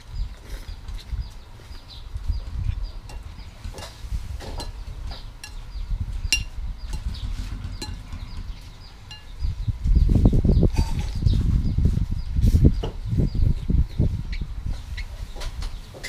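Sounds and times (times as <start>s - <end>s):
low rumble: 2.0s - 14.7s.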